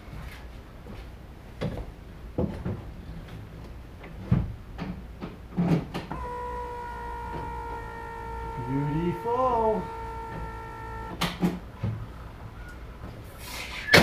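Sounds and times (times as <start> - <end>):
steady electric whine: 6.1 - 12.4.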